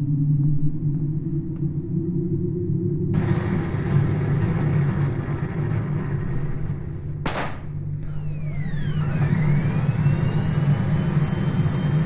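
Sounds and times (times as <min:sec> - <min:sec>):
low rumbling drone: 0:00.0 - 0:12.0
falling electronic sweeps: 0:08.0 - 0:12.0.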